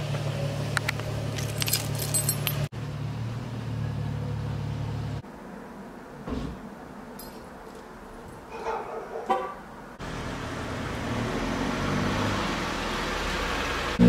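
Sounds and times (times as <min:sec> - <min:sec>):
keys jangling: 0:01.4 - 0:02.7, 0:07.2 - 0:07.8.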